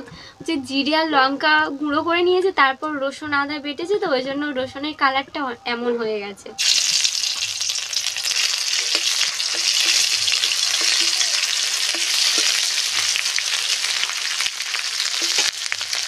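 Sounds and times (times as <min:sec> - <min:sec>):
garlic sizzling in hot oil: 0:06.6 - 0:16.0.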